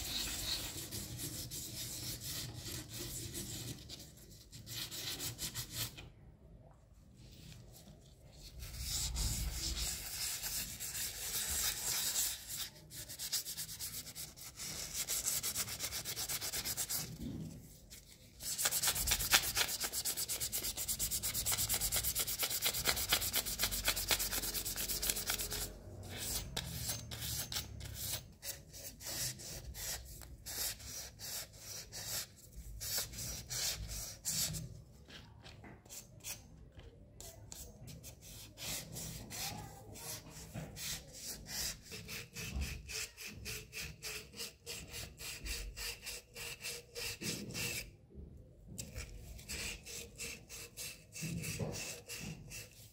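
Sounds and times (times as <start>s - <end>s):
sandpaper rasping on metal: 0.0s - 4.0s, 8.6s - 17.1s, 18.4s - 34.6s, 40.8s - 47.8s.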